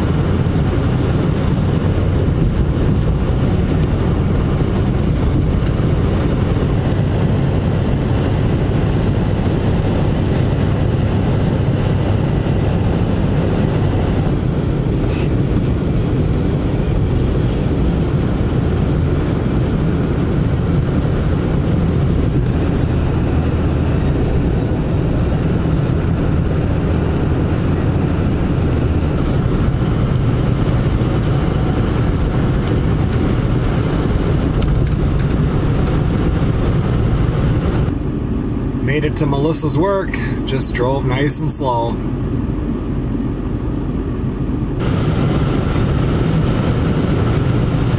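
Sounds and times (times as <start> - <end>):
car road and engine rumble: 0.0 - 47.9.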